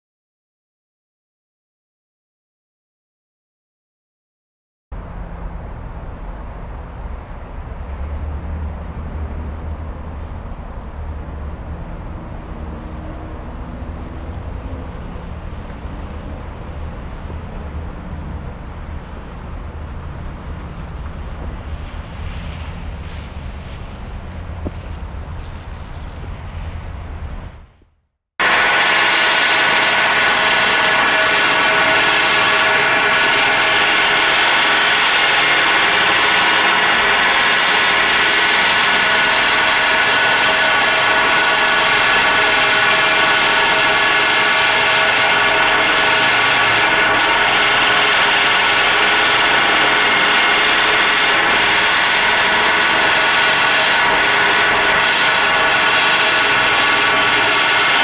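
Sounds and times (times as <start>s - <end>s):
pneumatic air hammer rattling: 28.4s - 58.0s
steel firebox ringing: 28.4s - 58.0s.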